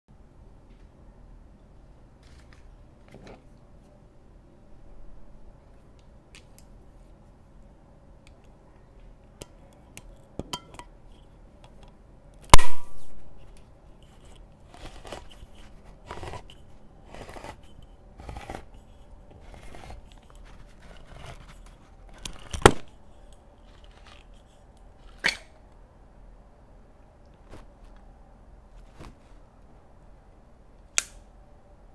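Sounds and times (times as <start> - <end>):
can opener sharp clicks: 31.0 - 31.2.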